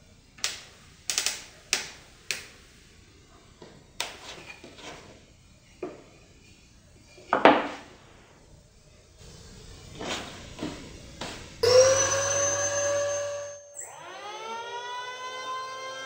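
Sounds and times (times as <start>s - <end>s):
wooden knock: 7.3s - 7.8s
electric planer motor whine: 11.6s - 16.0s.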